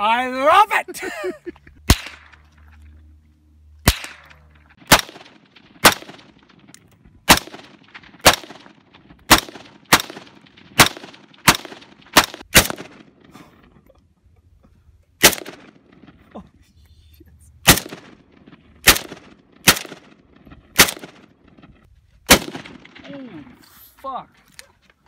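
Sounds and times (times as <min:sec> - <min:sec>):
gunshots with short echo: 0:03.8 - 0:13.3, 0:15.2 - 0:16.2, 0:17.6 - 0:23.2.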